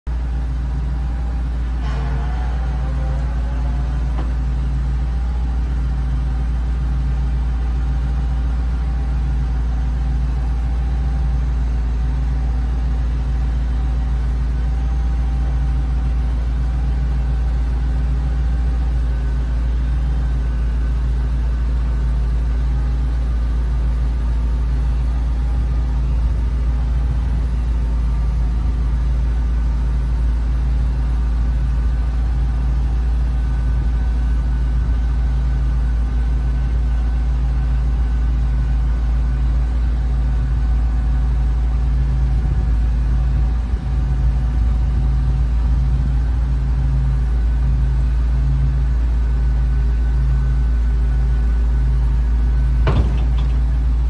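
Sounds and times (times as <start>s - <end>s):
truck engine idling: 0.1s - 54.0s
hydraulic lift lowering: 1.6s - 5.7s, 52.7s - 54.0s.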